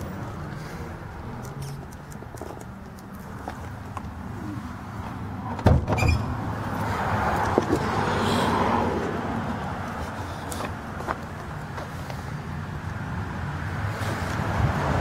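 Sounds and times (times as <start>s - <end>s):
car door thumping shut: 5.6s - 6.3s.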